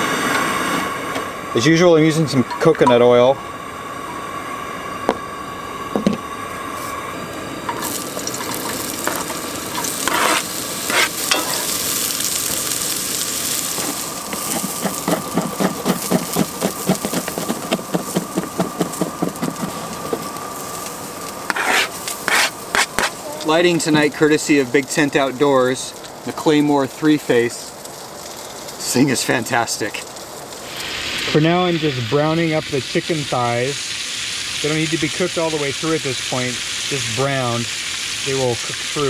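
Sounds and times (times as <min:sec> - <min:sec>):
onions sizzling in oil: 0:00.0 - 0:39.0
wooden spoon scraping pan: 0:08.6 - 0:11.7, 0:13.8 - 0:19.8, 0:21.5 - 0:23.2.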